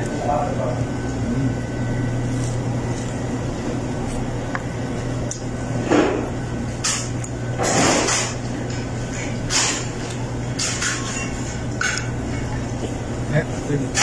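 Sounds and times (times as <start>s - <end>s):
air conditioning unit humming: 0.0s - 14.0s.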